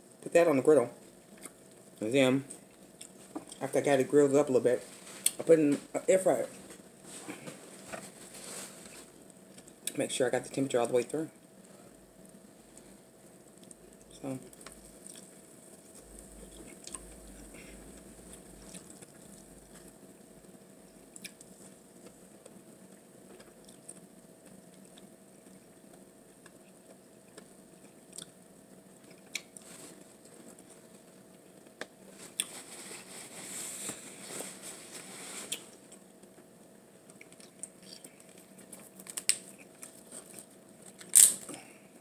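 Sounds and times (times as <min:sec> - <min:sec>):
close chewing of food: 0:12.7 - 0:32.6.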